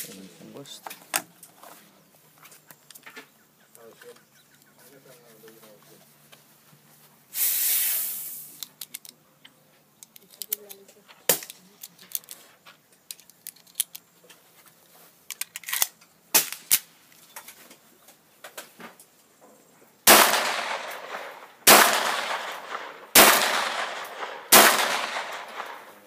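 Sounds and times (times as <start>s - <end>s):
cartridges and magazine clicking: 8.6s - 9.2s, 10.0s - 12.4s, 13.0s - 14.1s, 15.3s - 16.9s, 20.1s - 26.0s
pistol shots with echo: 20.1s - 26.0s.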